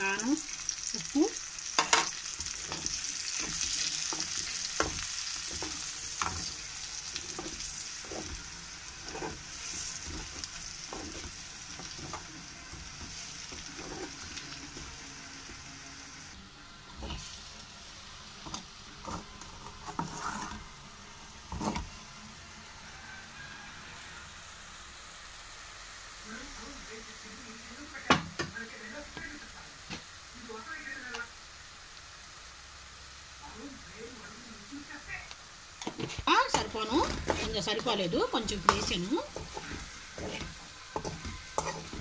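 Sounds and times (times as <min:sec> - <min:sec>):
hot oil sizzling: 0:00.0 - 0:42.0
steel spoon scraping pan: 0:01.8 - 0:14.9, 0:19.8 - 0:20.6, 0:35.8 - 0:42.0.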